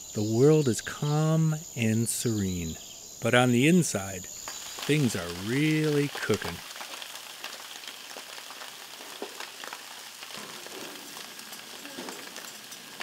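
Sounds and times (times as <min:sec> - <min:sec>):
food sizzling: 0:03.4 - 0:13.0.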